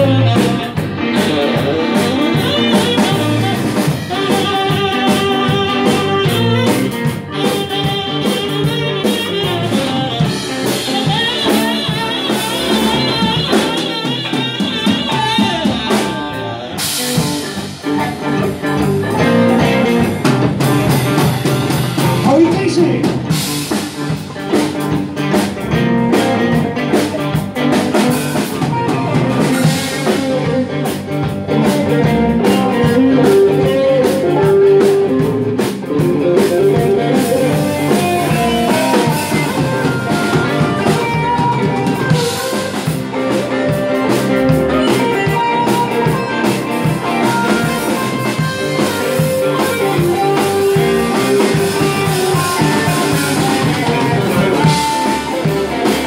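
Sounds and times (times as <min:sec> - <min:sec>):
drums and cymbals: 0:00.0 - 0:56.0
live blues band playing: 0:00.0 - 0:56.0.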